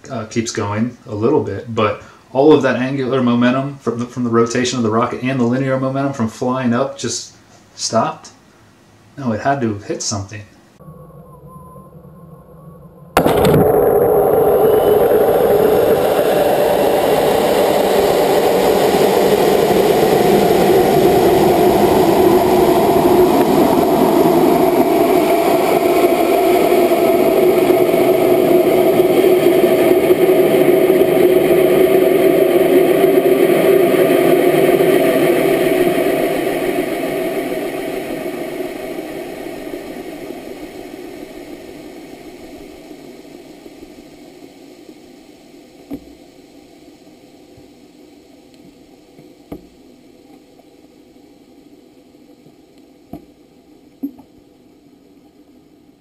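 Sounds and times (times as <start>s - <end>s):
faint hiss: 0.0s - 22.3s, 23.1s - 56.0s
rocket motor burning: 10.8s - 50.2s.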